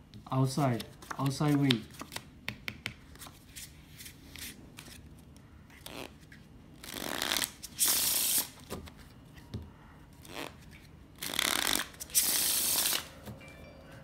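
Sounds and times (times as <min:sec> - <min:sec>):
rustles and taps of card deck: 0:01.0 - 0:03.4
playing cards riffle-shuffled: 0:10.2 - 0:13.1.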